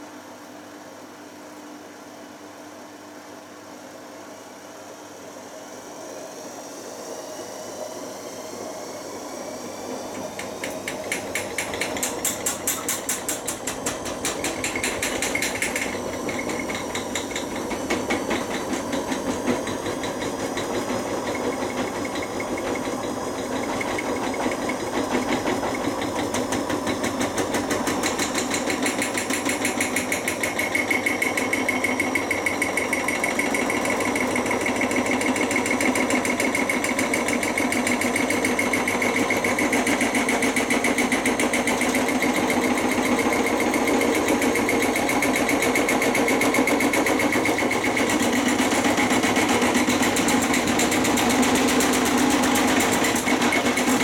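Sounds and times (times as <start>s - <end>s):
washing machine rattling and hammering: 10.2s - 54.0s.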